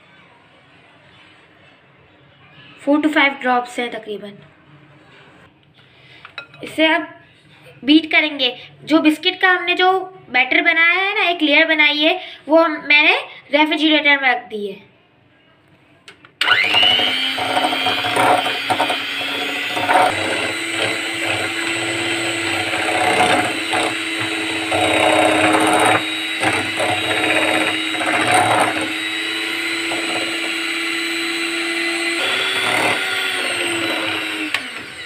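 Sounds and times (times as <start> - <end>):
electric hand mixer whine: 16.4 - 35.0.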